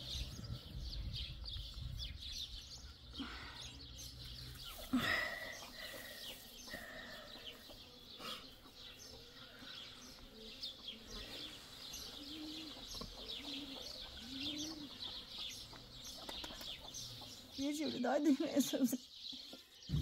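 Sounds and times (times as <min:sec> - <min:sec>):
small birds chirping: 0:00.0 - 0:20.0
dove cooing: 0:11.1 - 0:17.3.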